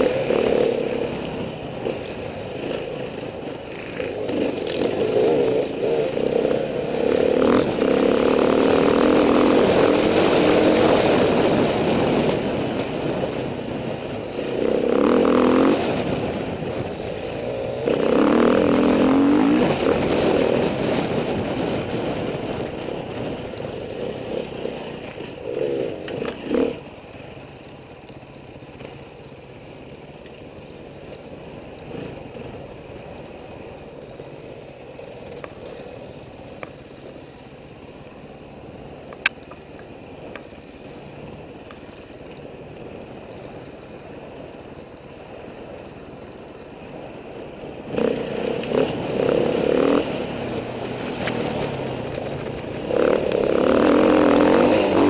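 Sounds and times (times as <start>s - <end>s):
dirt bike engine revving: 0.0s - 13.4s, 14.3s - 26.8s, 47.8s - 55.0s.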